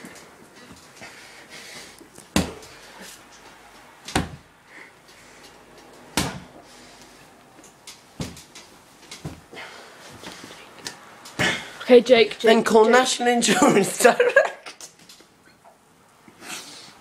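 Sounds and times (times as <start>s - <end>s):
bedding rustling: 0.0s - 12.8s.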